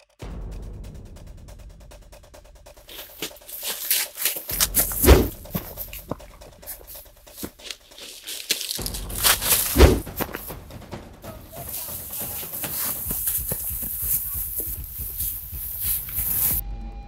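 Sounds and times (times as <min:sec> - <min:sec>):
heavy thuds: 0:00.4 - 0:07.8, 0:08.8 - 0:16.6
dry grass rustling and crunching: 0:02.9 - 0:10.6, 0:11.5 - 0:16.6.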